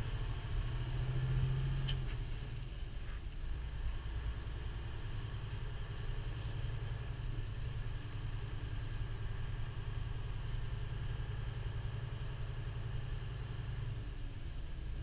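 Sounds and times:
truck diesel engine droning: 0:00.0 - 0:02.7.

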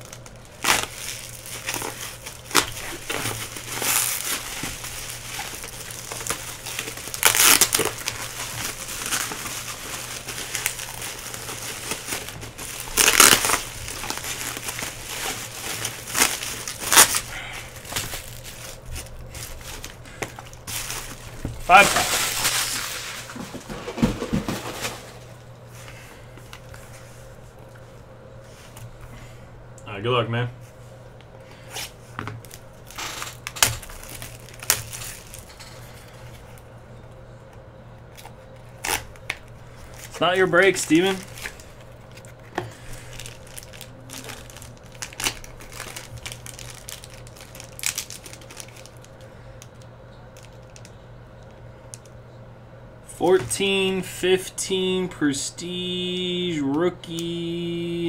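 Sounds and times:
plastic wrapping crinkling and tearing: 0:00.0 - 0:25.3, 0:31.7 - 0:36.6, 0:38.0 - 0:52.1
low steady hum: 0:00.0 - 0:58.0
cardboard boxes rustling: 0:00.6 - 0:25.4.

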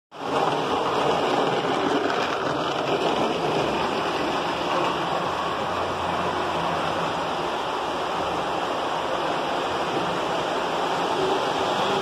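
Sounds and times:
toy trains rolling on metal rails: 0:00.2 - 0:07.5.

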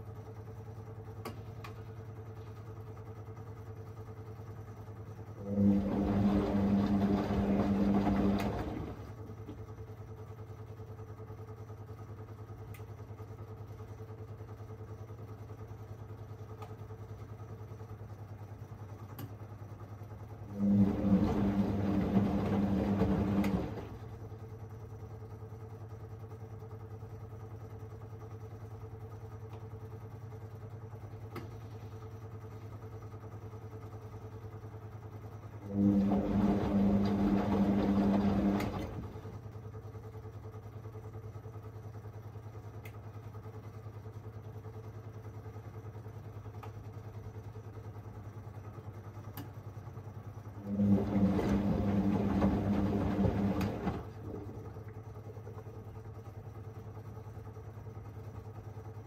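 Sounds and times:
washing machine drum turning: 0:05.4 - 0:09.1, 0:20.6 - 0:24.1, 0:35.7 - 0:39.3, 0:50.7 - 0:54.7.

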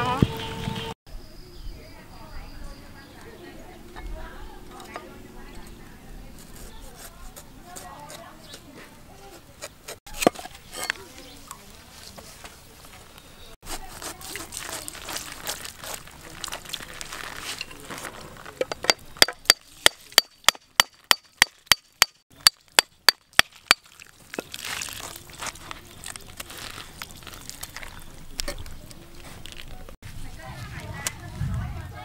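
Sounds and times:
blade crunching through fruit rind: 0:13.6 - 0:18.5, 0:22.3 - 0:30.0.

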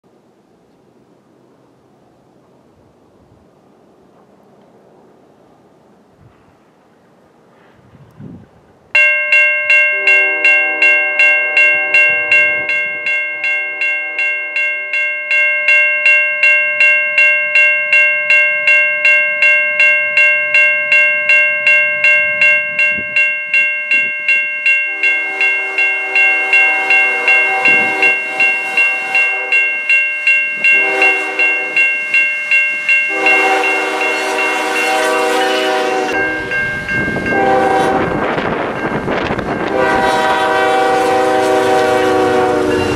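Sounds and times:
locomotive horn chord: 0:09.9 - 0:14.5, 0:24.9 - 0:29.9, 0:30.6 - 0:32.2, 0:32.8 - 0:38.4, 0:39.5 - 0:42.9
train rumble: 0:20.1 - 0:42.9.

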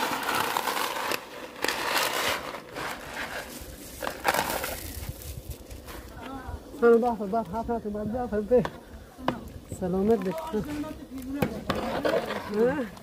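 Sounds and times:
dry noodles crackling and rustling: 0:00.0 - 0:07.6.

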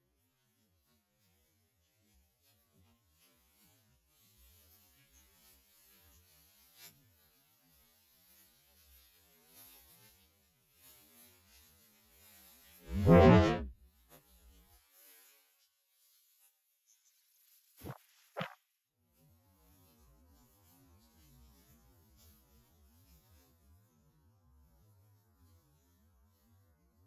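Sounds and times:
faint rustling in grass: 0:14.5 - 0:18.6.

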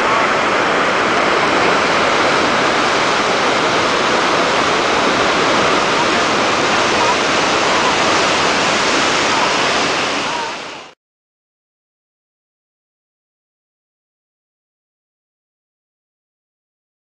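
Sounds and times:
river water over rocks: 0:00.0 - 0:11.0.

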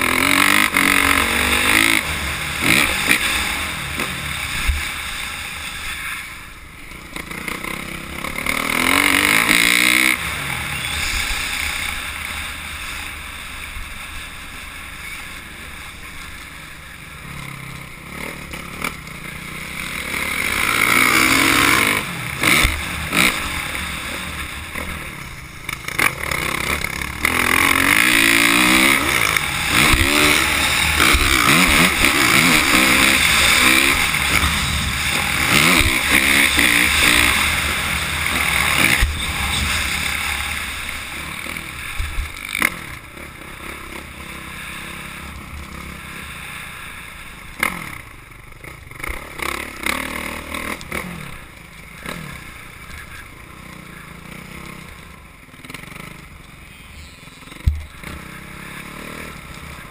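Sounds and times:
dirt bike engine revving: 0:00.0 - 0:59.9
rushing wind: 0:19.4 - 0:47.4
rattle over bumps: 0:20.7 - 0:44.2.

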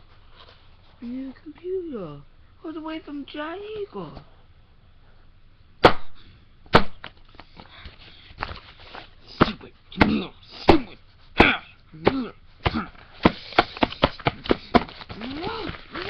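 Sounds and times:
hand smacking egg carton: 0:09.4 - 0:16.0
grunting vocal sounds: 0:09.5 - 0:13.1.

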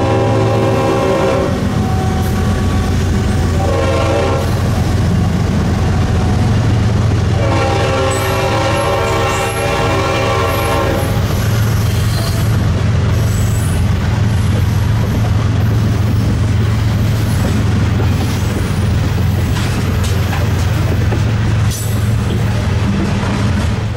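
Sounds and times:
locomotive horn blast: 0:00.0 - 0:04.9, 0:07.2 - 0:11.4
freight train rumbling past: 0:00.0 - 0:23.9
train wheels clicking and squealing: 0:08.1 - 0:09.7, 0:10.5 - 0:23.9.

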